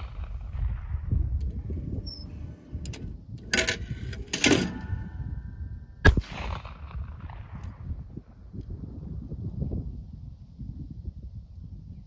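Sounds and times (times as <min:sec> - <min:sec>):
shotgun shot with echo: 0:06.0 - 0:07.9.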